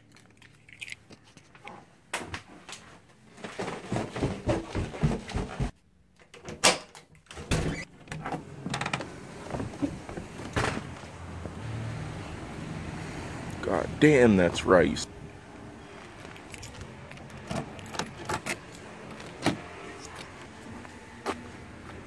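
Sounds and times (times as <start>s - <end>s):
footsteps: 3.4s - 5.8s, 18.5s - 22.0s
car keys jingling: 16.0s - 18.9s.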